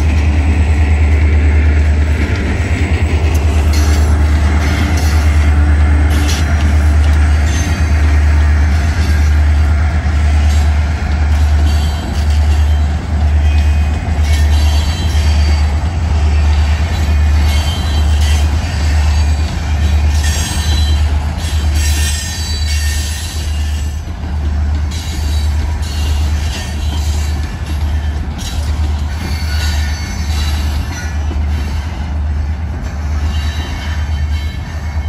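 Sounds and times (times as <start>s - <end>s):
train wheels rumbling on rails: 0.0s - 35.0s.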